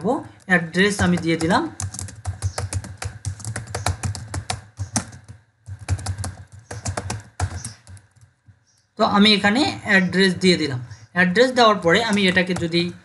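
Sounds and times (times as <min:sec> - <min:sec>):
computer keyboard typing: 0:00.0 - 0:08.9, 0:11.8 - 0:13.0.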